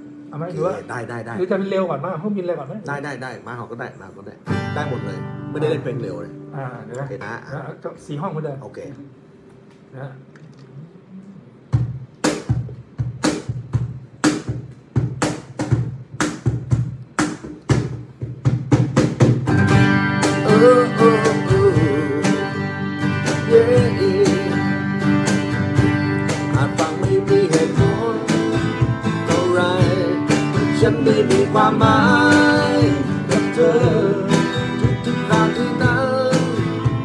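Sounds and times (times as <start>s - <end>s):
acoustic guitar strumming: 4.4s - 7.2s, 17.8s - 37.0s
person humming wordless melody: 20.4s - 22.7s, 23.3s - 25.0s, 26.1s - 36.8s.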